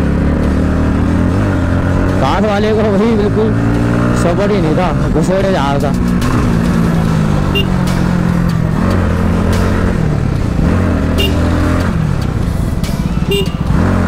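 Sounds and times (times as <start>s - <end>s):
motorcycle engine revving: 0.0s - 14.0s
short horn beeps: 7.5s - 7.8s, 11.2s - 11.5s, 13.3s - 13.6s.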